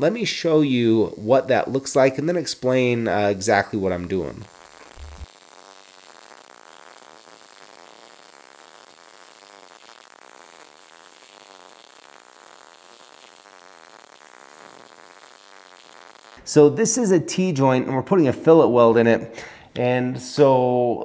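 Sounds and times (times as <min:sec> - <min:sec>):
welding arc crackling and buzzing: 0:00.0 - 0:16.4.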